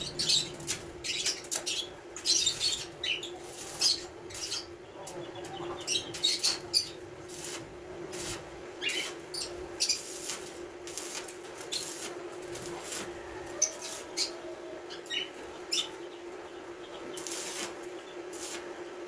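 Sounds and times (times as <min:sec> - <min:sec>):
birds chirping: 0:00.0 - 0:07.3, 0:08.7 - 0:10.1, 0:12.6 - 0:19.0
welding arc crackling: 0:00.0 - 0:14.5, 0:17.0 - 0:19.0
steady welder hum: 0:00.0 - 0:19.0.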